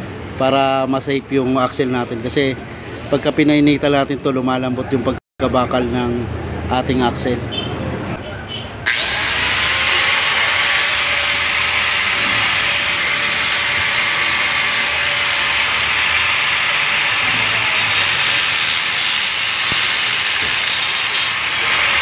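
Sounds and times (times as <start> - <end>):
angle grinder cutting steel: 8.9 - 22.0.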